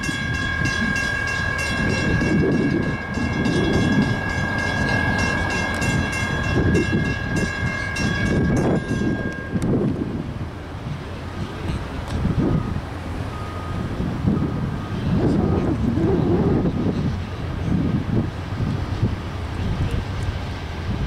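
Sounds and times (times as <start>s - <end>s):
low rumble of approaching train: 0.0s - 21.0s.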